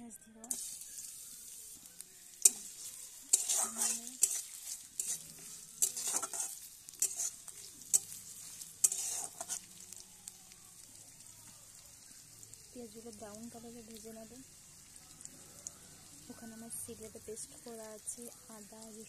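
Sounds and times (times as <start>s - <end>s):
onions sizzling in hot oil: 0.4s - 19.0s
metal spatula scraping a pan: 0.5s - 1.8s, 2.4s - 9.9s.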